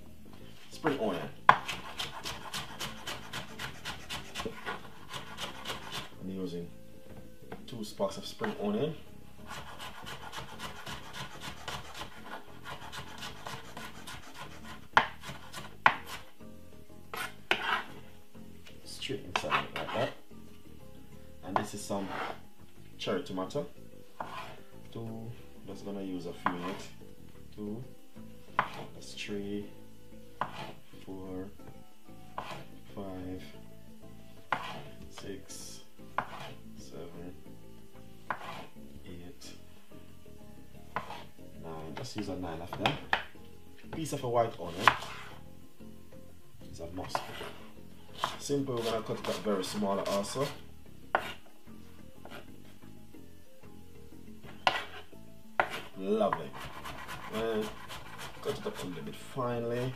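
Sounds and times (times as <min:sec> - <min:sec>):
knife chopping on cutting board: 0:01.5 - 0:06.1, 0:09.5 - 0:16.2, 0:17.1 - 0:17.9, 0:19.3 - 0:20.1, 0:21.6 - 0:22.4, 0:24.2 - 0:24.6, 0:28.6 - 0:28.9, 0:30.4 - 0:30.8, 0:32.4 - 0:32.7, 0:34.5 - 0:34.9, 0:36.2 - 0:36.6, 0:38.3 - 0:38.7, 0:40.9 - 0:41.3, 0:42.7 - 0:43.3, 0:44.7 - 0:45.3, 0:47.0 - 0:47.5, 0:48.2 - 0:51.4, 0:52.2 - 0:52.5, 0:54.5 - 0:55.0, 0:55.6 - 0:59.0.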